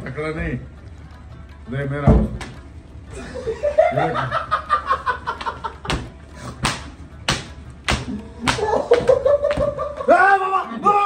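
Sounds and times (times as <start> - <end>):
men laughing and exclaiming: 3.1 - 6.6, 8.0 - 11.0
sharp smacks: 5.9 - 9.8.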